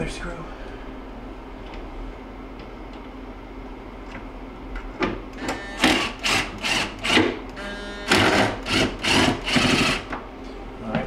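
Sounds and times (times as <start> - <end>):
steady low hum: 0.0 - 11.0
cordless drill driving a screw: 5.8 - 7.3, 8.1 - 10.1.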